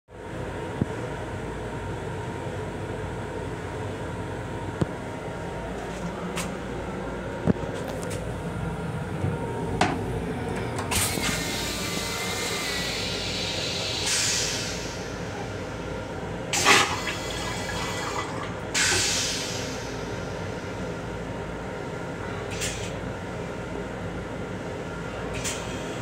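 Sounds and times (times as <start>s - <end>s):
toilet bowl rushing whooshes: 16.6s - 19.0s
toilet flush click and knock: 16.6s - 19.0s.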